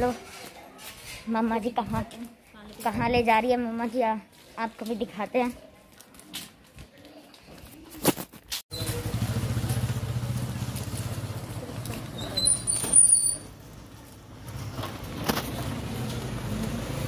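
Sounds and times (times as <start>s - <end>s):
motorcycle engine passing by: 8.7s - 17.0s
high thin squeaks: 12.2s - 13.5s.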